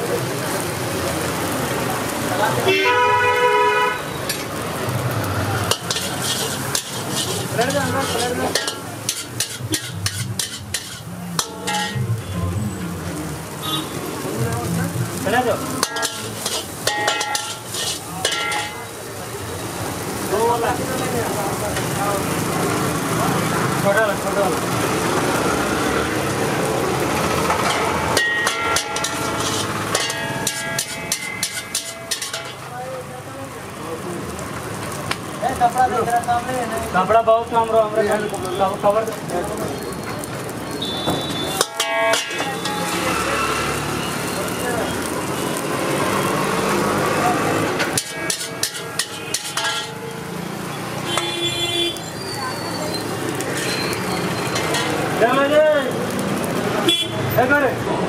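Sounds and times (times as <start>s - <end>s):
rice sizzling: 0.0s - 57.8s
frying hiss: 0.0s - 58.0s
metal ladle clanking on wok: 5.7s - 12.2s, 15.7s - 18.9s, 27.6s - 32.7s, 41.6s - 43.1s, 47.8s - 50.2s, 54.5s - 55.2s.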